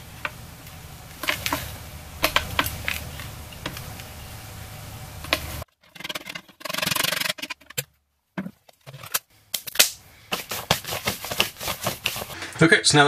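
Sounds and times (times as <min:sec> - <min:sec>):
low background hum: 0:00.0 - 0:13.0
soft rubbing and rustling: 0:10.2 - 0:12.4
hands brushing off with taps: 0:10.3 - 0:12.6.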